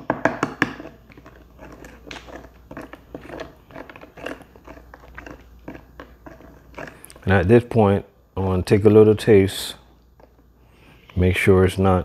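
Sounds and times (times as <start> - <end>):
spoon scraping plastic tub: 0.0 - 7.7.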